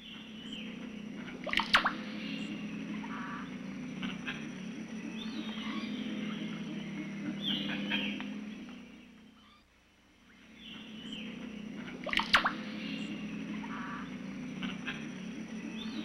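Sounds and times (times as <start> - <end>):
birds calling: 0.0 - 16.0
low pulsing background chorus: 0.0 - 16.0
sharp loud bird notes: 0.0 - 16.0.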